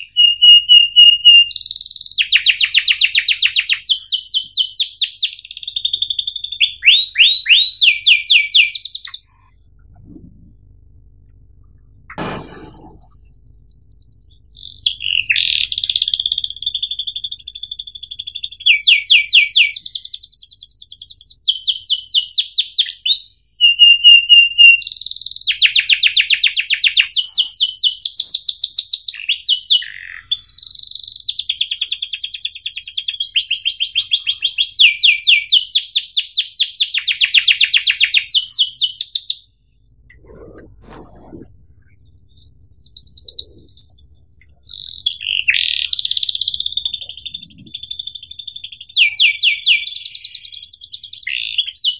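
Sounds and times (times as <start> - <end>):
canary singing trills: 0.0 - 10.8, 11.6 - 51.9
faint low sounds: 9.4 - 13.1, 39.8 - 43.8.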